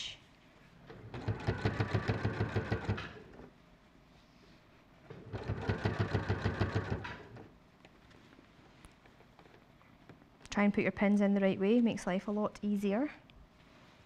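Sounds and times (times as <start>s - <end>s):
sewing machine stitching: 0.9s - 3.5s, 5.1s - 7.5s.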